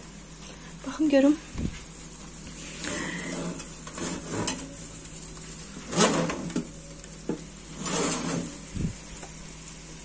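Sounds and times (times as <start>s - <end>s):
chicken sizzling in a pan: 0.0s - 10.0s
metal oven rack scraping: 2.9s - 4.9s, 5.8s - 6.8s, 7.7s - 8.7s.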